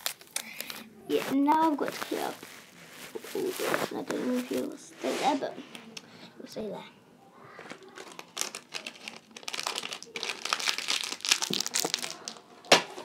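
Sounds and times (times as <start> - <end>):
crinkly rustling of handled items: 0.0 - 5.8, 7.4 - 13.0.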